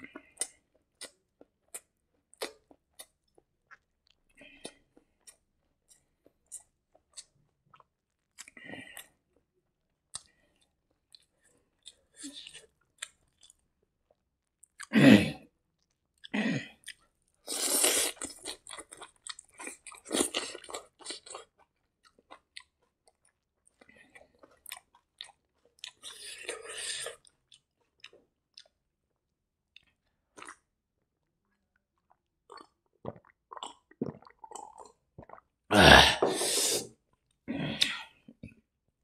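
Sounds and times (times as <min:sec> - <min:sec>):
loud wet mouth sound: 0:33.0 - 0:36.9.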